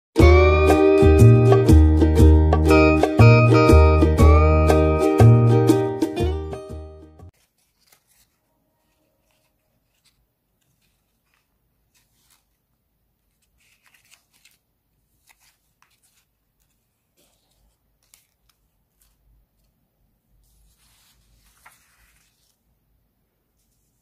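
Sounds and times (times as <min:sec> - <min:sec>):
paper rustling and tapping: 0:07.3 - 0:08.4, 0:20.8 - 0:22.6.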